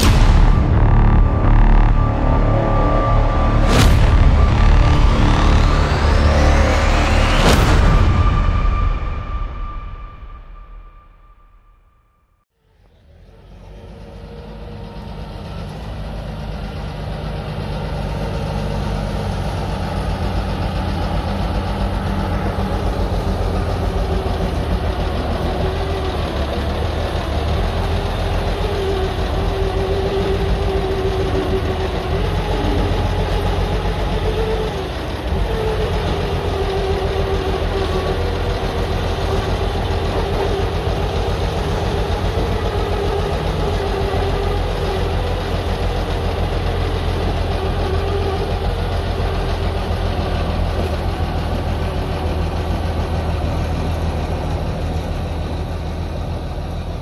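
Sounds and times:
diesel engine idling: 0:12.6 - 0:57.0.

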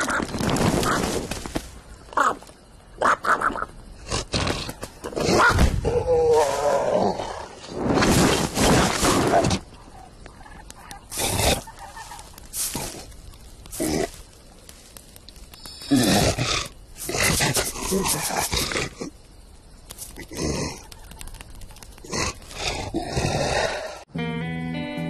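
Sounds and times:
warbling gobbling cry: 0:09.9 - 0:12.4.

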